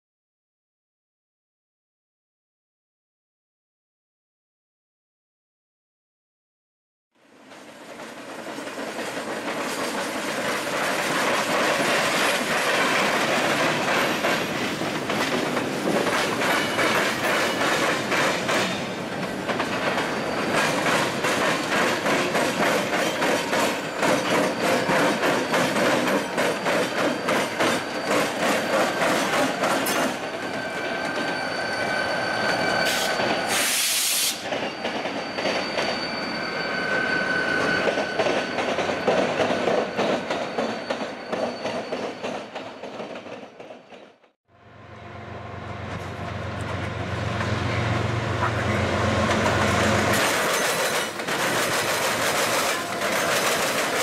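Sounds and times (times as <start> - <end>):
freight train rolling past: 7.2 - 54.0
wheels clicking over rail joints: 7.5 - 31.2, 49.2 - 54.0
thin steady wheel squeal: 18.7 - 42.9
burst of hiss: 32.8 - 34.5.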